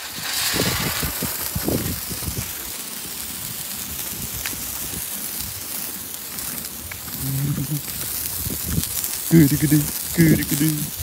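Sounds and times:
low rumbles: 0:00.0 - 0:02.8
fireworks hissing sparks: 0:00.0 - 0:11.0.

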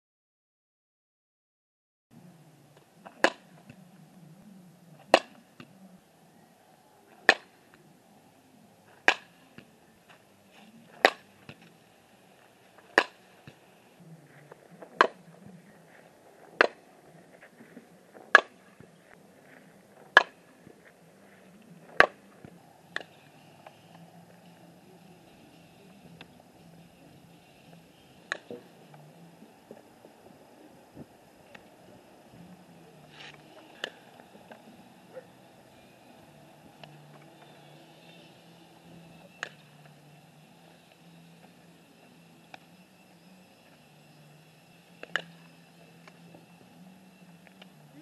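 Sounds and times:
faint background noise: 0:02.1 - 0:48.0
bat cracking on ball: 0:03.0 - 0:03.8, 0:05.0 - 0:05.7, 0:07.2 - 0:07.6, 0:09.0 - 0:09.7, 0:11.0 - 0:11.7, 0:12.9 - 0:13.6, 0:14.9 - 0:15.2, 0:16.6 - 0:16.9, 0:20.1 - 0:20.4, 0:21.9 - 0:23.2.

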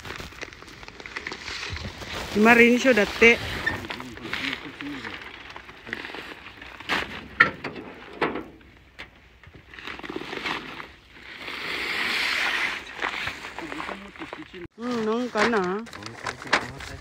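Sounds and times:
plastic sacks rustling: 0:00.0 - 0:08.9, 0:12.4 - 0:17.0.

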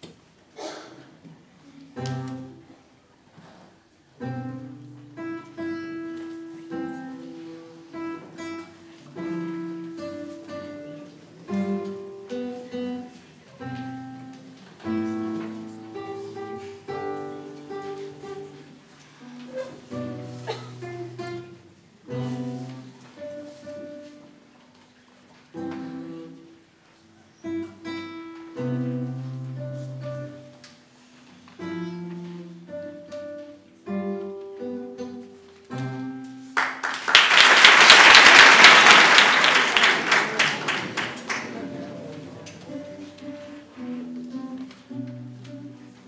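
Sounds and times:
classical guitar piece: 0:01.1 - 0:36.9, 0:40.0 - 0:46.0
audience applauding: 0:36.5 - 0:42.6.

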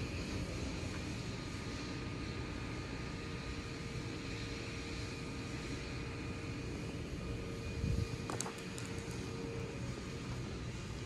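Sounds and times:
train machinery droning hum: 0:00.0 - 0:11.0.

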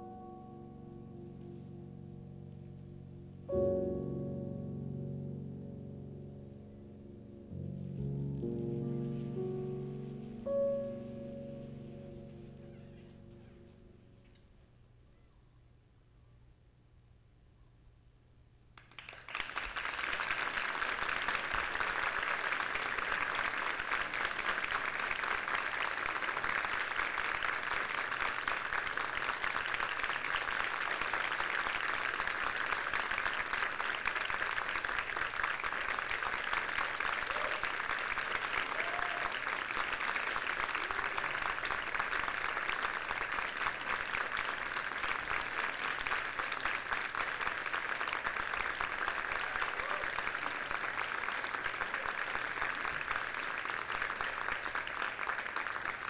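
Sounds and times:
audience applauding: 0:18.8 - 0:56.0
audience whooping: 0:36.9 - 0:42.2, 0:49.1 - 0:51.1.

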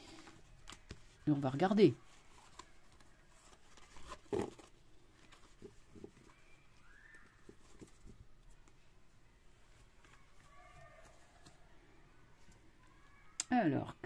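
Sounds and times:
cards tapping and rustling: 0:00.0 - 0:08.8.

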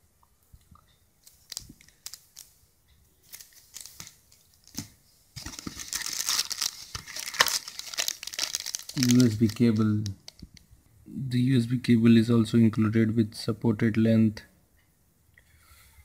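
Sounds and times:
plastic bags crinkling: 0:01.2 - 0:02.6, 0:03.2 - 0:10.6.

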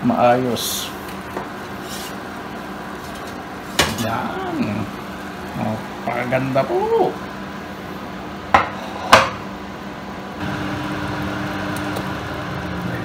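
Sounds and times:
range hood fan hum: 0:00.0 - 0:13.0.

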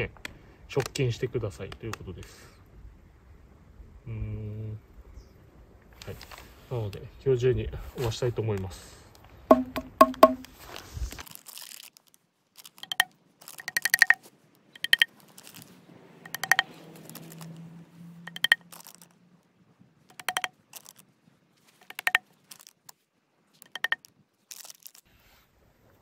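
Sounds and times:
small hammer ringing taps: 0:09.5 - 0:10.5, 0:14.8 - 0:15.1, 0:16.3 - 0:16.7, 0:18.3 - 0:18.6, 0:20.1 - 0:20.5, 0:21.9 - 0:22.2, 0:23.8 - 0:24.0.

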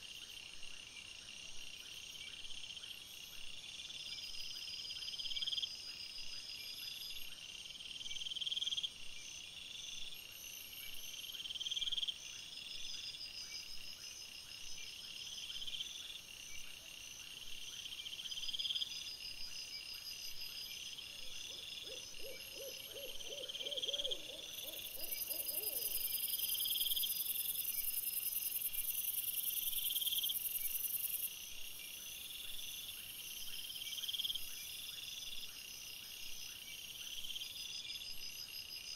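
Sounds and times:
crickets chirping: 0:00.0 - 0:38.9
low rapidly repeated insect calls: 0:00.0 - 0:38.9.

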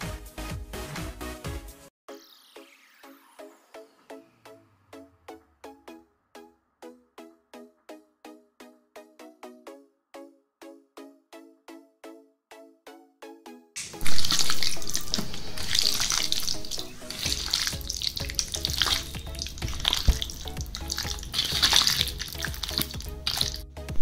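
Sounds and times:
light background music: 0:00.0 - 0:24.0
wet squelching of kneaded marinade: 0:13.8 - 0:23.6.

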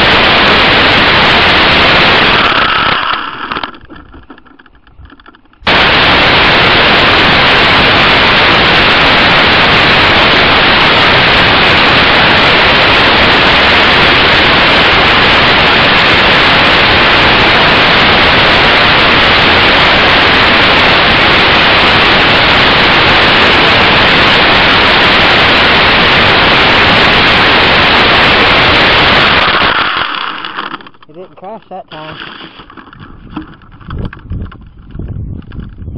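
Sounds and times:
loud static hiss: 0:00.0 - 0:34.7.

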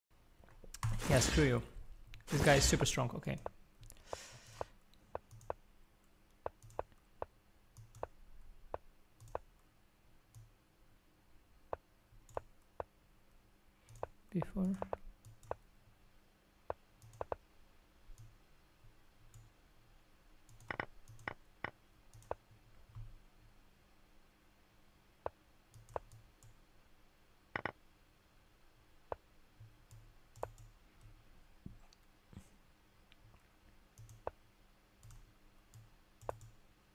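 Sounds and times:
faint computer mouse clicks: 0:06.4 - 0:09.7, 0:17.0 - 0:17.4, 0:25.7 - 0:26.6, 0:35.0 - 0:36.6.

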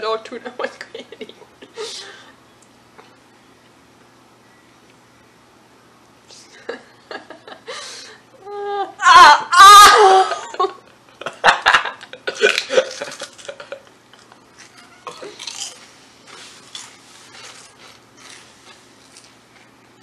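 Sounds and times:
teenagers laughing: 0:06.6 - 0:08.0, 0:10.0 - 0:14.2
woman yelling: 0:08.5 - 0:10.4.

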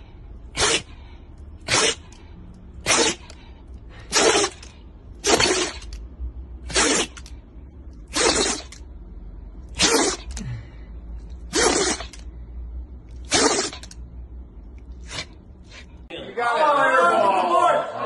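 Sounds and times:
dog sneezing: 0:00.5 - 0:01.0, 0:01.6 - 0:02.2, 0:02.8 - 0:03.4, 0:04.0 - 0:05.9, 0:06.7 - 0:07.3, 0:08.1 - 0:08.8, 0:09.7 - 0:10.4, 0:11.4 - 0:12.2, 0:13.2 - 0:14.0, 0:15.0 - 0:16.0.

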